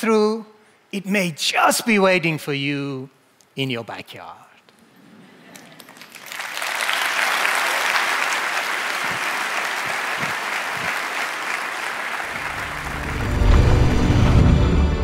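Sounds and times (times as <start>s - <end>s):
audience applauding: 5.6s - 14.6s
low music: 12.3s - 15.0s.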